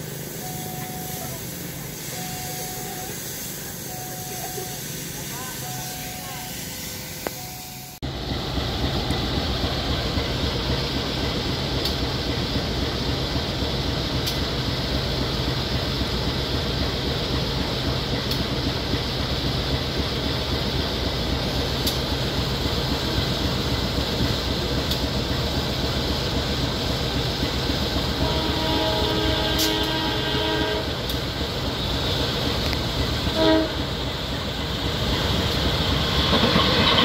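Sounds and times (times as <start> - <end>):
hiss of blowers: 0.0 - 7.8, 21.2 - 37.0
locomotive engine idling: 0.0 - 37.0.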